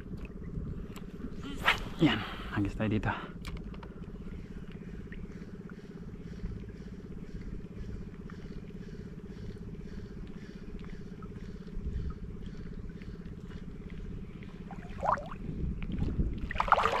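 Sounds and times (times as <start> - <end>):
small engine running: 3.1 - 14.8.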